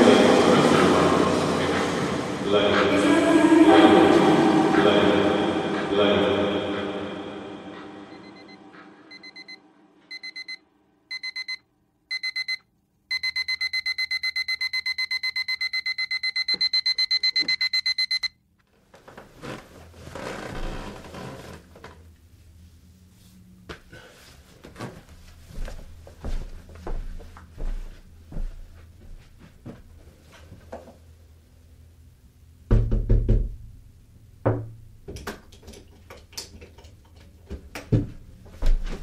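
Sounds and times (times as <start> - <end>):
alarm clock beeping: 7.7 - 18.4.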